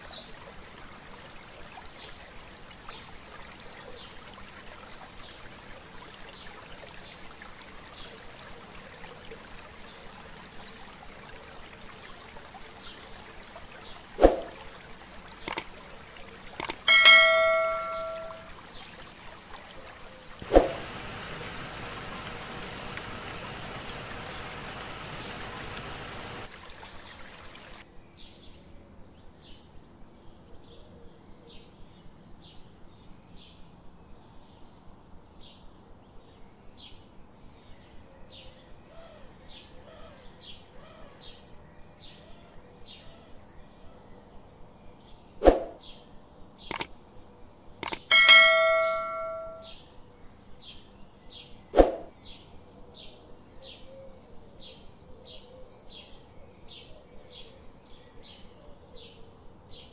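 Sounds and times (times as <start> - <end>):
sharp clicks: 15.5 - 15.7, 16.6 - 18.4, 47.8 - 49.7
bell-like ding: 16.6 - 18.5, 47.8 - 49.7
short high chirps: 16.6 - 18.5, 47.8 - 49.7.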